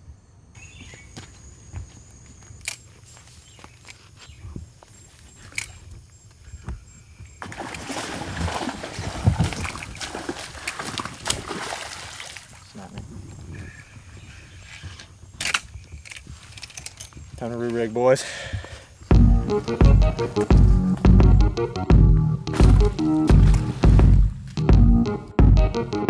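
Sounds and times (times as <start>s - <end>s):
fish splashing in water: 7.4s - 12.6s.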